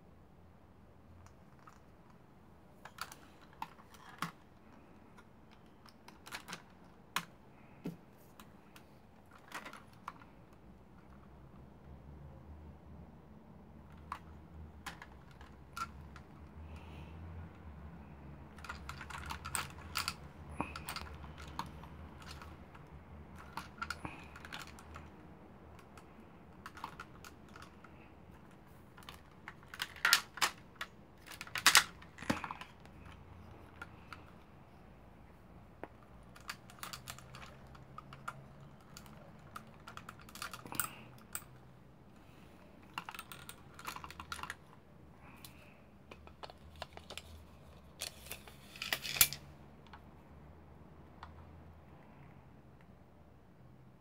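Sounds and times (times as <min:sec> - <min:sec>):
plastic toy parts clicking: 0:01.2 - 0:02.2, 0:02.8 - 0:10.4, 0:13.8 - 0:16.9, 0:18.5 - 0:34.4, 0:36.2 - 0:41.6, 0:42.8 - 0:44.8, 0:45.4 - 0:50.0.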